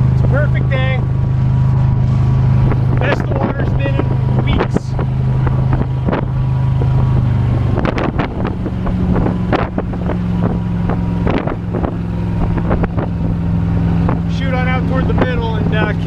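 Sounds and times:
boat engine running: 0.0s - 16.0s
wind buffeting microphone: 0.0s - 16.0s.

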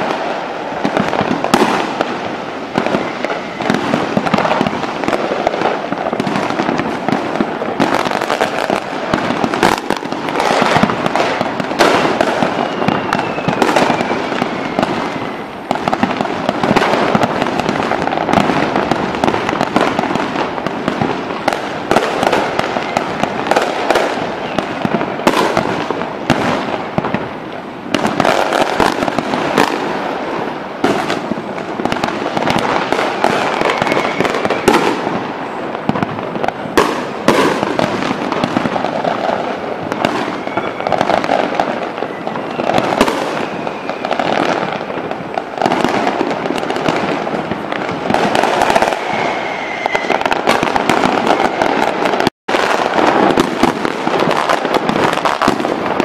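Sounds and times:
fireworks booming and crackling: 0.0s - 56.0s
high descending whistle: 12.4s - 15.4s, 33.6s - 34.7s, 48.9s - 50.3s.

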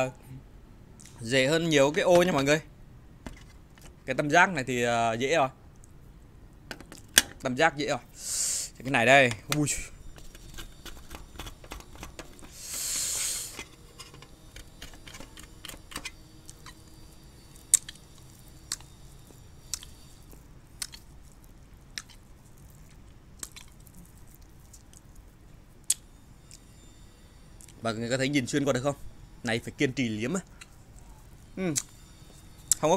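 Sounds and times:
breathy hiss: 8.1s - 8.8s, 12.5s - 13.8s
needle scratching sugar candy: 10.1s - 25.3s
wet mouth clicks: 20.8s - 21.1s, 21.9s - 22.2s, 23.4s - 24.1s.

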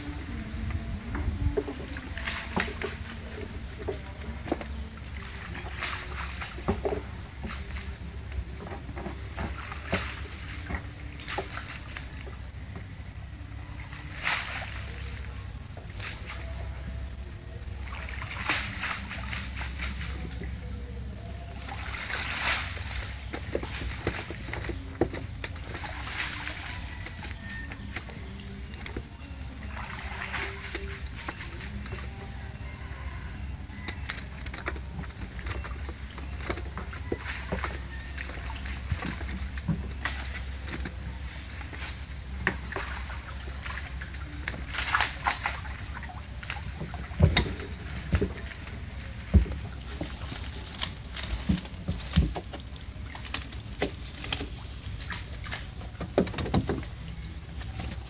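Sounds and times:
water splashing and streaming off a trap: 0.0s - 58.0s.

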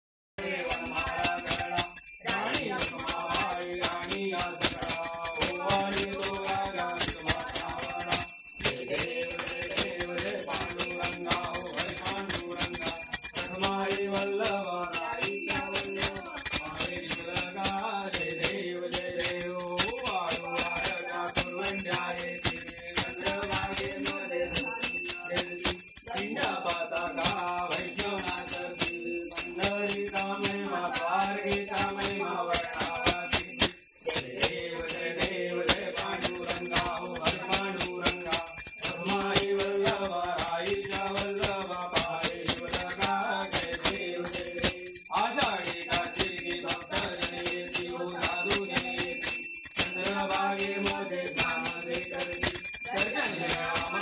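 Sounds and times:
group of people singing: 0.4s - 54.0s
small hand bell ringing: 0.4s - 54.0s.

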